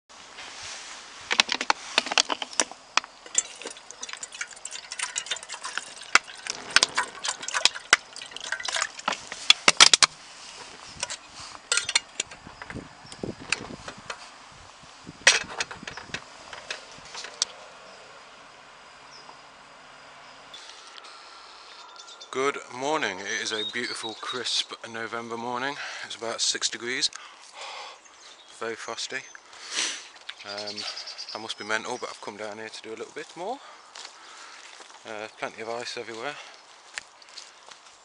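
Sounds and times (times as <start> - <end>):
metal kettle clinks and knocks: 1.3 - 10.1, 11.0 - 12.7, 15.2 - 17.4
water splashing: 3.2 - 9.9.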